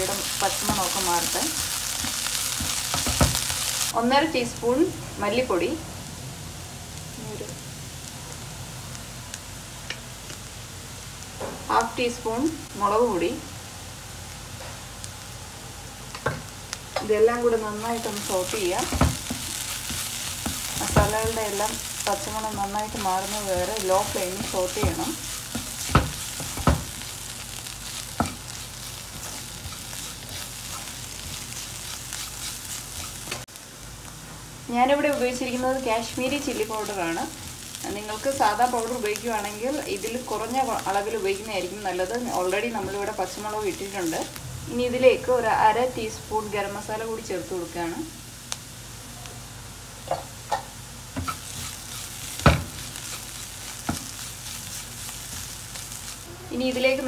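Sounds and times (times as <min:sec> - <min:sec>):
wooden spatula scraping: 0:00.0 - 0:03.9, 0:17.8 - 0:33.5, 0:51.2 - 0:57.0
onions sizzling in a wok: 0:00.0 - 0:57.0.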